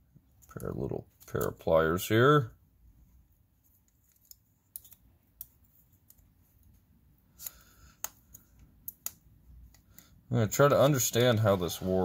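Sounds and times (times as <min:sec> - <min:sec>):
pliers clicking on metal: 0:07.4 - 0:09.8.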